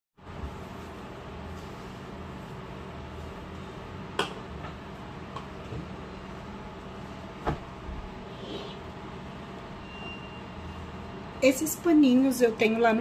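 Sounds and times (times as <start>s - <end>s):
steady background hum: 0.2s - 13.0s.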